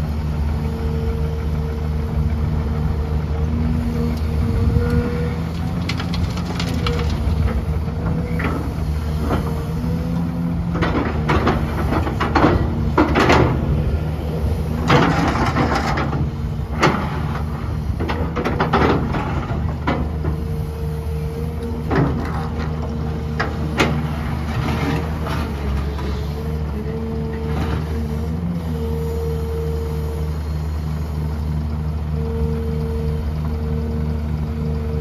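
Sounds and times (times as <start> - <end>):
heavy diesel engine running: 0.0 - 35.0
excavator bucket scraping and rattling: 4.4 - 28.7.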